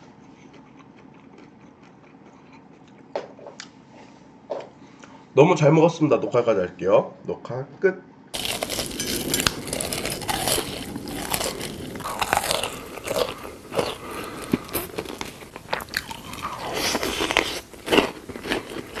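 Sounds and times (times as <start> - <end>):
crunchy eating: 0.0 - 3.1, 8.4 - 19.0.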